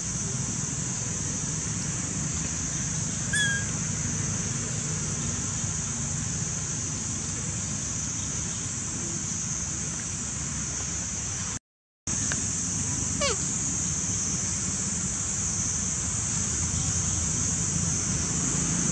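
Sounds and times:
short high chirp: 3.3s - 3.7s
high-pitched hiss: 12.1s - 18.8s.

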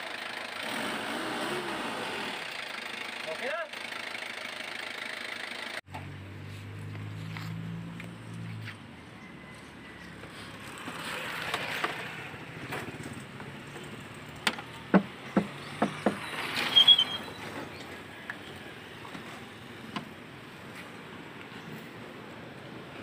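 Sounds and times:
sharp clicks and knocks of parts: 12.7s - 16.2s.

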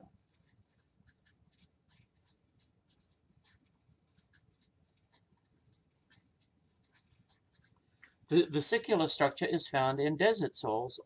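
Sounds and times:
marker scratching on whiteboard: 0.0s - 7.9s.

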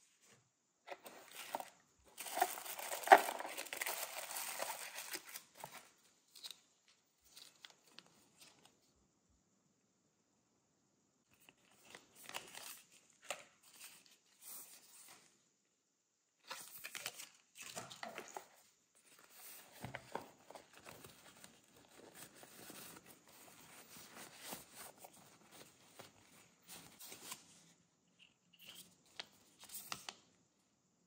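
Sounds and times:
packaging crinkling: 1.0s - 6.6s.

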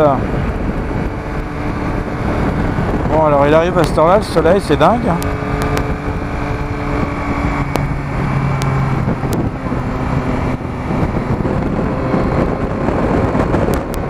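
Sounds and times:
motorcycle engine at speed: 0.0s - 14.0s
wind buffeting on microphone: 0.0s - 14.0s
sharp clicks: 5.2s - 6.0s.

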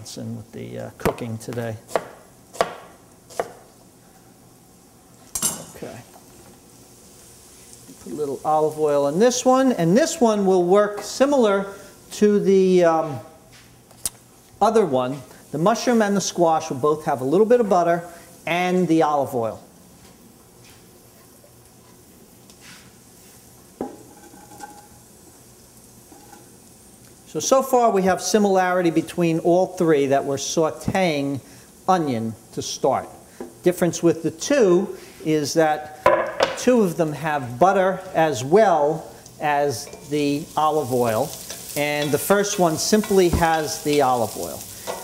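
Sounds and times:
frying sizzle: 0.0s - 45.0s
knife chopping on wooden board: 1.9s - 3.6s.

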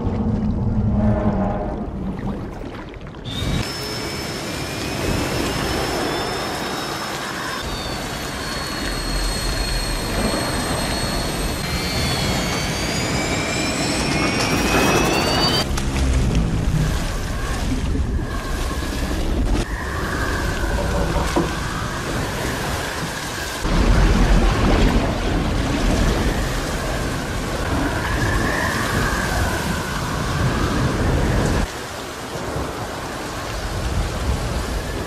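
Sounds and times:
deep rumble: 0.0s - 3.6s, 7.6s - 31.7s
heavy rain: 3.6s - 12.5s, 15.0s - 35.0s.

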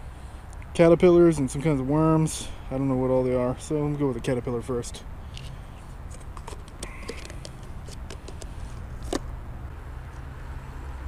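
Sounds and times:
plastic cup handling clicks: 6.1s - 9.3s.

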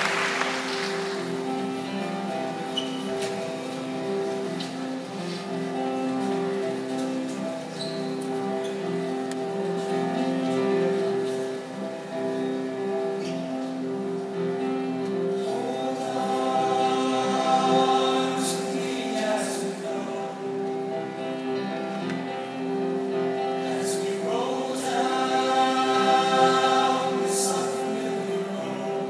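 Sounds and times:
large choir singing: 13.4s - 29.0s.

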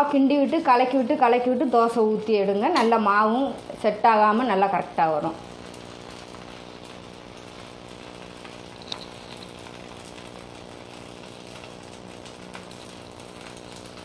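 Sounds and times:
batter sizzling in oil: 0.0s - 14.0s
motor-like hum: 3.2s - 14.0s.

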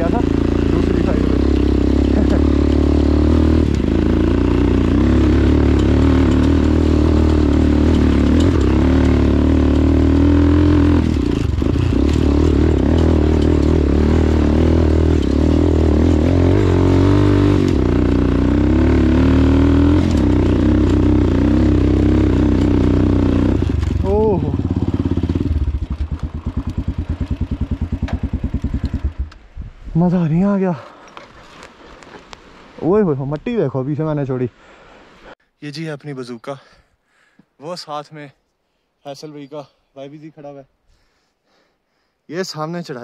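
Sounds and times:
dirt bike engine pulling hard: 0.0s - 29.3s.

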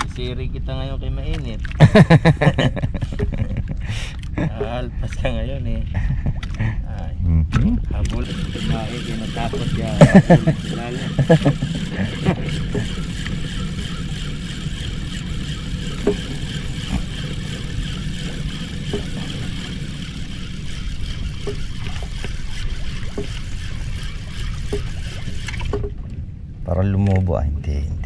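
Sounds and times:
water and wind rushing: 0.0s - 28.0s
faint reel clicks: 8.0s - 25.9s
fishing reel cranking: 8.1s - 25.9s.

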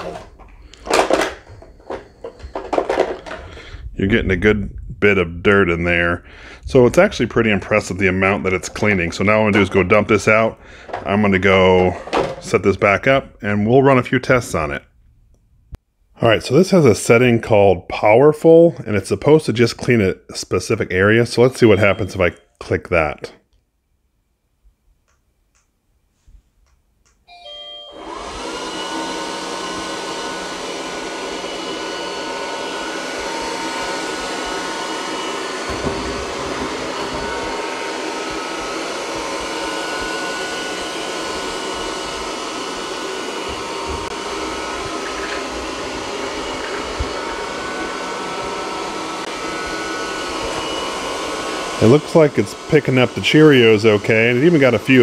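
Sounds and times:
robot vacuum beeping chime: 21.6s - 22.4s, 27.3s - 29.0s, 36.0s - 38.0s
vacuum suction motor whine: 27.4s - 55.0s.

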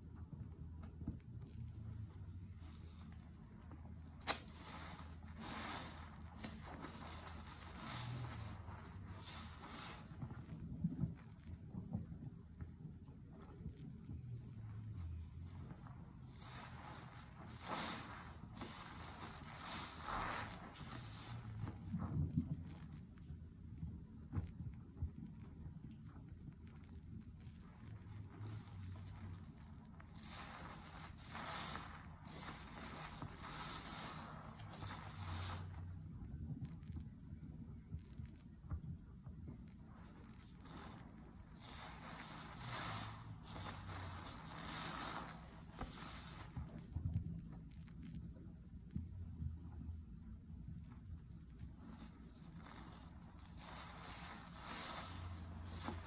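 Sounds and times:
sponge squelching: 4.1s - 10.8s, 14.1s - 23.0s, 26.8s - 36.0s, 39.8s - 46.9s, 51.8s - 56.0s
foam fizzing hiss: 4.2s - 10.5s, 16.2s - 22.6s, 28.2s - 36.0s, 39.8s - 47.0s, 51.7s - 56.0s.

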